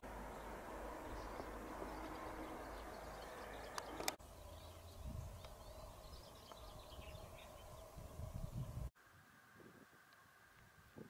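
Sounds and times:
small birds chirping: 0:00.1 - 0:08.9.

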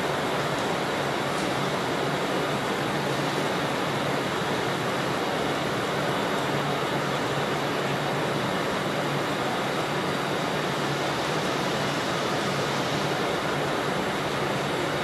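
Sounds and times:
steady hiss: 0:09.7 - 0:15.0.

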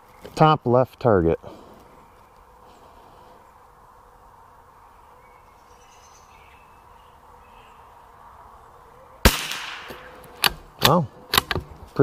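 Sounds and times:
bird chirps: 0:04.8 - 0:09.2.

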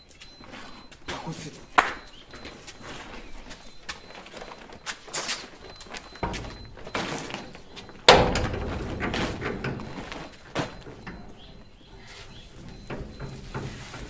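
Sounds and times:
gate knocks and rattling: 0:07.6 - 0:10.0, 0:12.6 - 0:14.0
metal gate banging: 0:07.6 - 0:10.0, 0:10.7 - 0:14.0.

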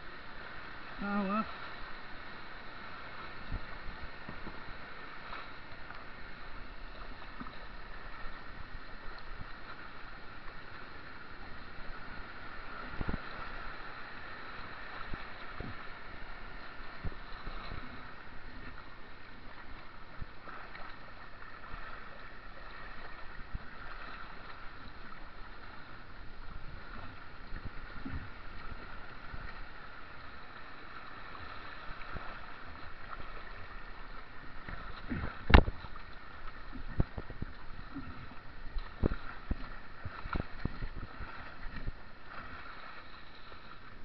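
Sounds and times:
rushing whitewater: 0:00.0 - 0:44.0
paddle knocks and splashes: 0:32.0 - 0:43.6.

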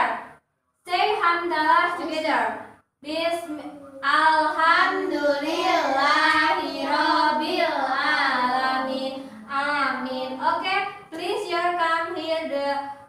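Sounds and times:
children singing in unison: 0:05.1 - 0:09.5.

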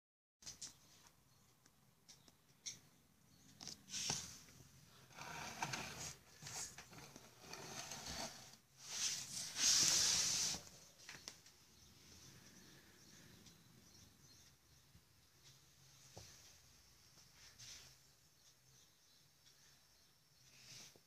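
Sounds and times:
rustling and scraping handling noise: 0:03.5 - 0:11.5.

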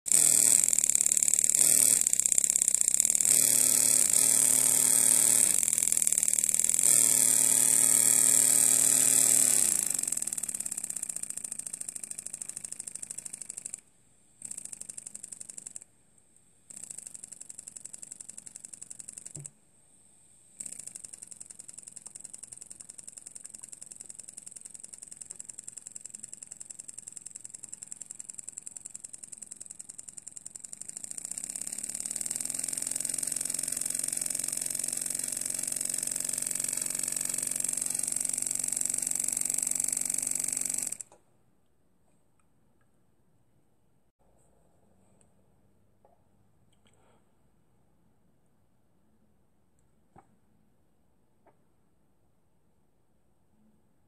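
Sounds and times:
miniature steam engine running: 0:00.1 - 0:15.9, 0:16.7 - 0:19.5, 0:20.6 - 0:41.1.

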